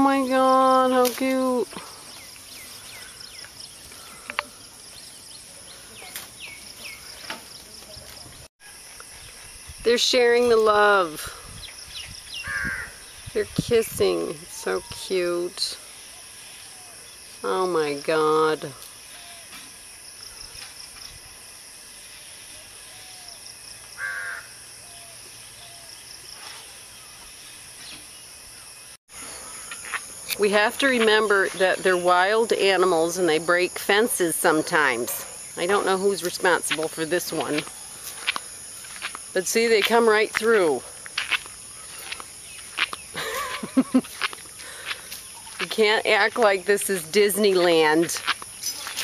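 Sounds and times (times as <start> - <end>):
bird chirping: 2.0 - 8.5
crow cawing: 12.4 - 13.0, 24.0 - 24.6
high-pitched insect buzz: 29.2 - 31.4.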